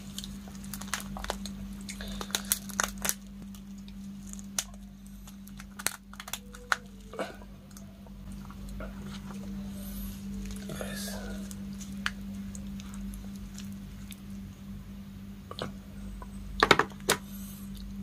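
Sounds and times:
prawn shell cracking: 0.0 - 9.3, 10.2 - 14.2
steady low hum: 0.0 - 18.0.

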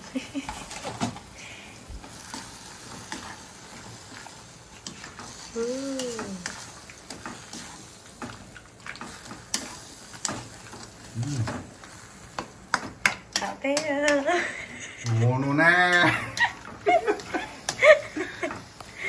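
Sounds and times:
mushrooms sizzling in a pan: 0.1 - 19.0
utensil clicking against pan: 4.8 - 11.0, 11.9 - 14.3, 15.8 - 18.9
person humming: 5.6 - 6.4, 11.1 - 11.6.

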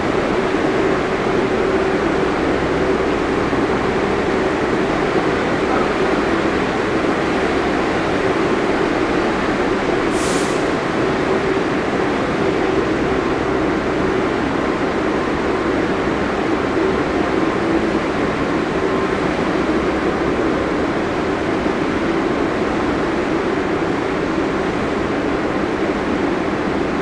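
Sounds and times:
subway train hum and rumble: 0.0 - 27.0
sharp hiss: 10.1 - 10.8.

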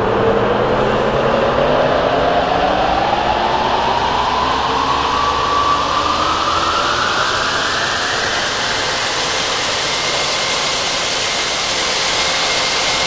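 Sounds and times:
thin rising tone: 0.0 - 10.3
dense electronic noise wash: 0.0 - 13.0.

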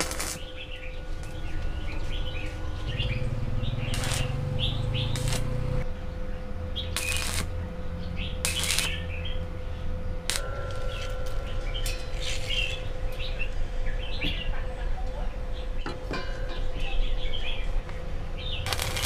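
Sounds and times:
steady hum: 0.0 - 19.0
small birds chirping: 10.8 - 16.0.

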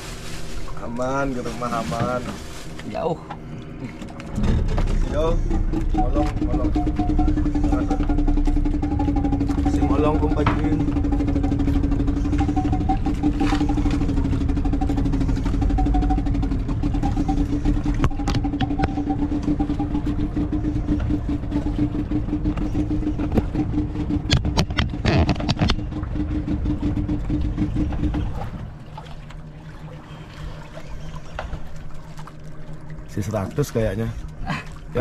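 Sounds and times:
boat engine running: 0.0 - 35.0.

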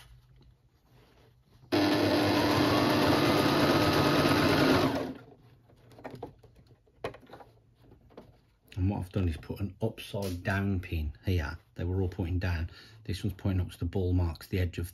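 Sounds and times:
faint handling sounds: 0.0 - 1.7, 5.2 - 13.7
electric sewing machine stitching: 1.7 - 5.3.

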